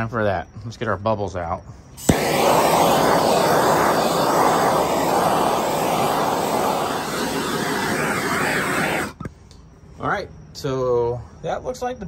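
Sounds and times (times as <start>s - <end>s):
gas torch flame hissing: 2.0s - 9.3s.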